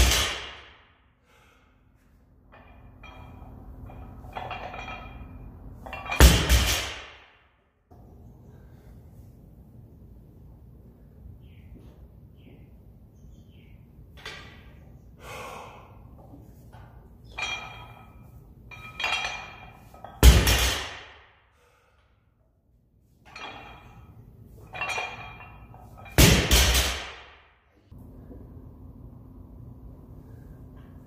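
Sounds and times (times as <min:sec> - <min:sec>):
barbell thudding on rubber floor: 0:06.0 - 0:07.2
short breaths: 0:15.1 - 0:16.1, 0:21.5 - 0:22.2.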